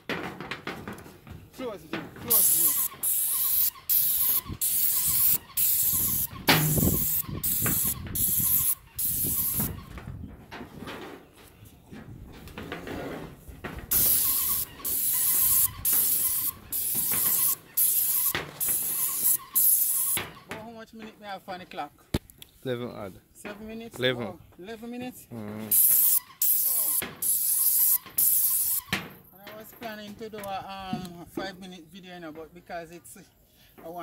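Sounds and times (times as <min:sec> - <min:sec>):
paint spray gun hissing: 0:02.3 - 0:09.8, 0:13.9 - 0:20.3, 0:25.7 - 0:28.9.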